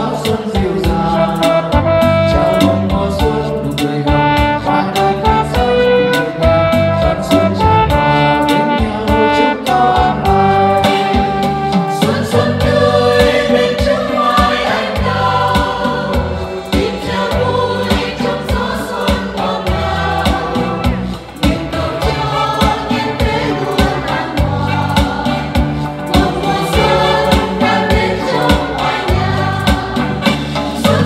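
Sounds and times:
electronic keyboard accompaniment: 0:00.0 - 0:31.0
women's choir singing a hymn: 0:12.0 - 0:31.0.

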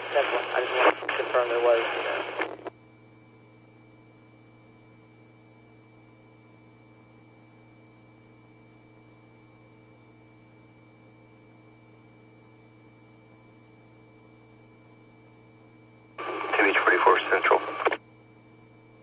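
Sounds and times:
electrical hum and hiss: 0:00.0 - 0:02.8, 0:10.5 - 0:19.0.

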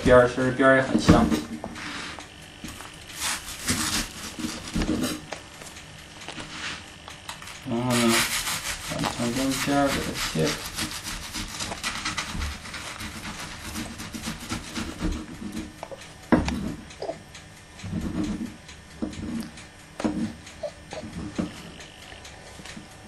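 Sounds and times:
knife sawing through bread crust: 0:03.1 - 0:05.3, 0:06.4 - 0:15.5.

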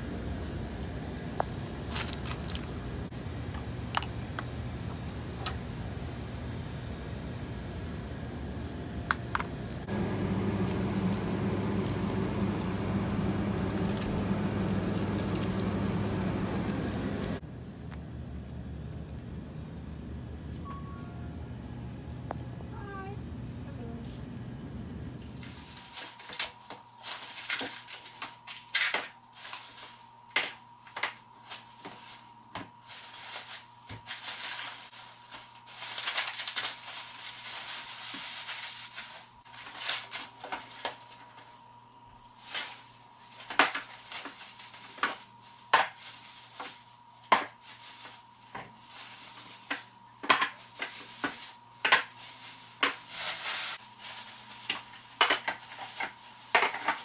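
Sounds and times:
plastic bags rustling: 0:01.8 - 0:02.8, 0:09.5 - 0:17.4, 0:25.3 - 0:41.6, 0:42.3 - 0:57.0.

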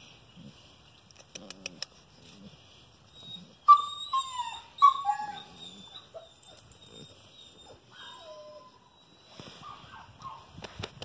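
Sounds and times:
puppy whimpering: 0:03.1 - 0:09.2.

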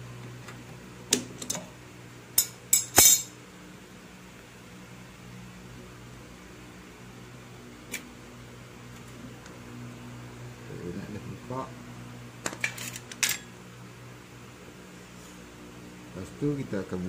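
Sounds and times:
steady low hum: 0:00.0 - 0:17.0
metal tools clinking: 0:02.4 - 0:03.3, 0:12.6 - 0:13.5.

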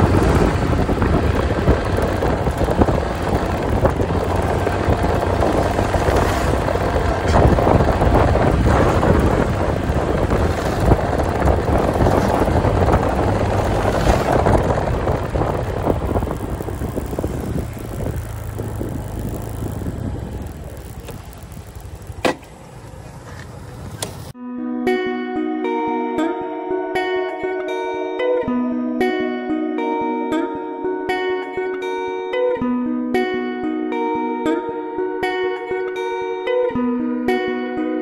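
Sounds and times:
motorcycle engine hum: 0:00.0 - 0:24.4
wind rushing over microphone: 0:00.0 - 0:24.4.

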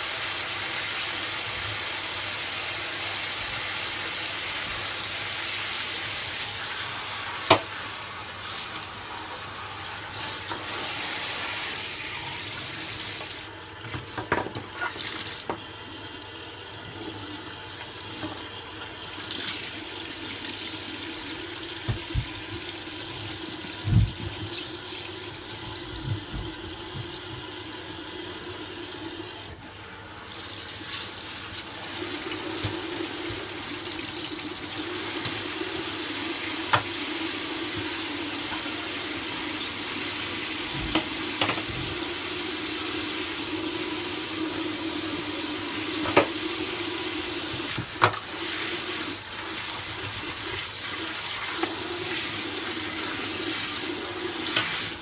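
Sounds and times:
tap spraying water into sink: 0:06.0 - 0:15.7, 0:17.8 - 0:18.5, 0:21.8 - 0:24.8, 0:25.6 - 0:27.6, 0:30.6 - 0:33.9, 0:34.8 - 0:42.2, 0:45.5 - 0:55.0.

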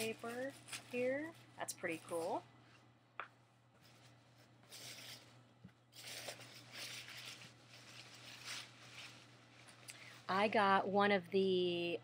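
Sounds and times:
tissue paper rustling: 0:00.0 - 0:02.4, 0:03.8 - 0:10.8.

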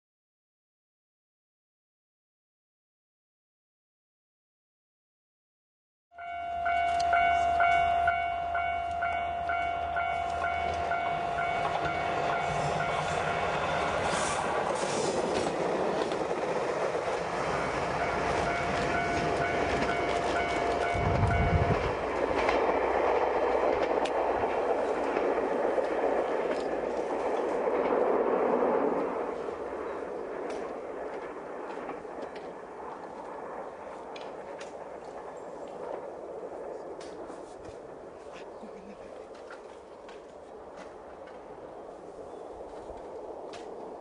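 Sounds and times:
level crossing alarm ringing: 0:06.2 - 0:14.2, 0:17.4 - 0:22.0
train running on rails: 0:06.2 - 0:44.0.

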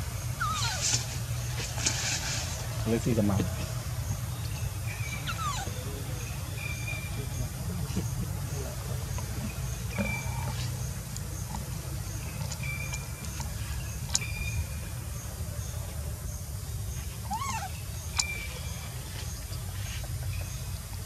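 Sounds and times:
baby monkey squeaking: 0:00.4 - 0:01.0, 0:05.1 - 0:05.8, 0:17.2 - 0:18.5.

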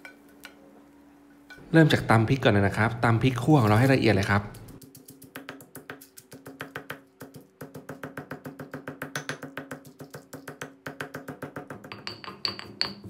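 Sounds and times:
pestle pounding in stone mortar: 0:04.5 - 0:13.0.

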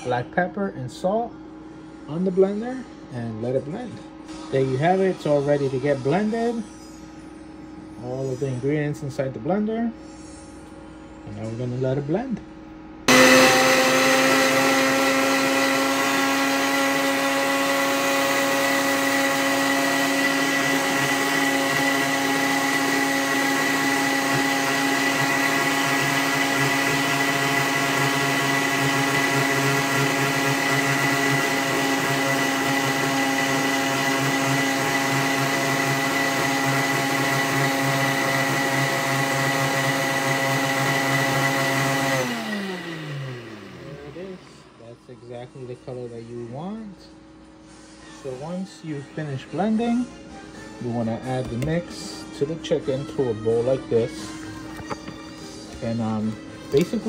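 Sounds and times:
blender motor whine: 0:13.1 - 0:44.8, 0:52.6 - 0:57.0.

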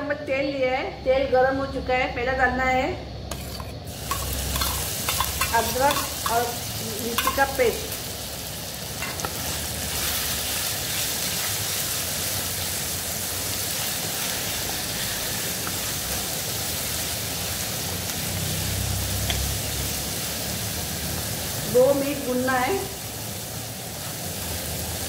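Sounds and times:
paste sizzling in hot oil: 0:03.1 - 0:25.0.

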